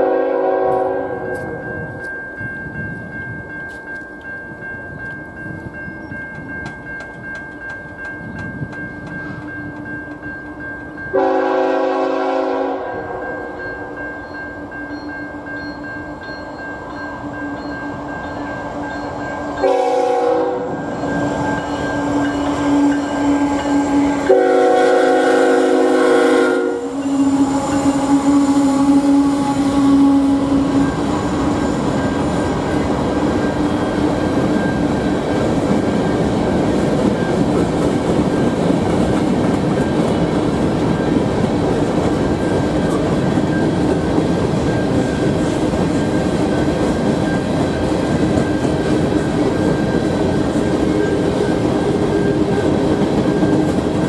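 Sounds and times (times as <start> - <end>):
locomotive air horn blasts: 0.0 - 1.6, 11.1 - 13.6, 19.6 - 20.8, 22.0 - 30.9
railroad crossing bell: 0.0 - 54.0
train rumble and wheel noise: 0.0 - 54.0.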